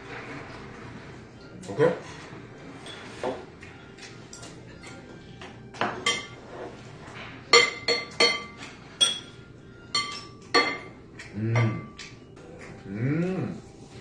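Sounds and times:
dishes and cutlery clinking: 0.1 - 12.9
person humming: 11.2 - 11.9, 12.7 - 13.7.

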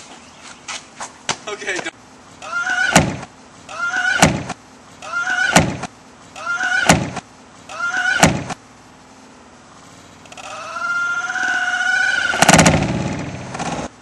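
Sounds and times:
plastic bin lid slamming: 4.2 - 4.6.

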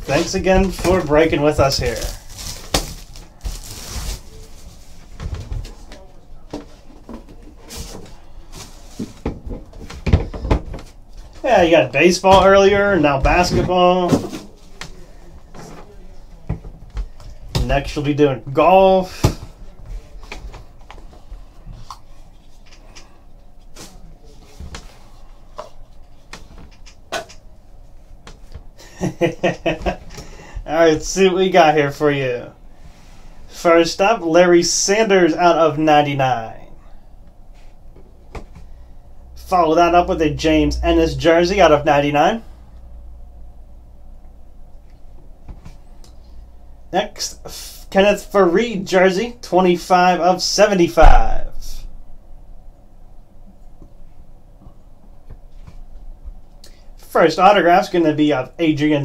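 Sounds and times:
plastic wrap crinkling: 0.1 - 5.0.

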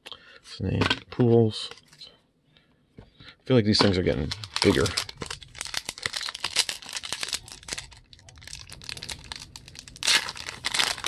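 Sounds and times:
foil wrapper crinkling and tearing: 4.0 - 11.0.

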